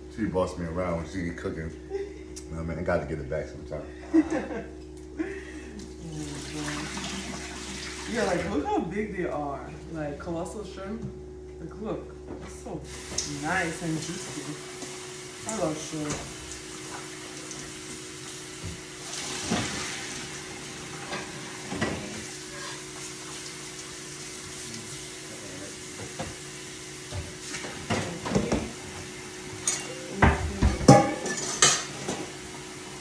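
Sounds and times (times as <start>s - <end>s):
low hum: 0.0s - 31.9s
stove sizzling: 5.8s - 9.2s, 12.8s - 33.0s.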